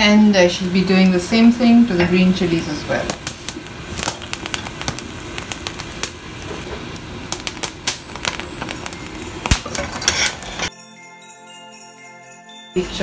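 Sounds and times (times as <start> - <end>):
open fire crackling: 0.0 - 10.7
sharp pops and snaps: 3.1 - 9.8.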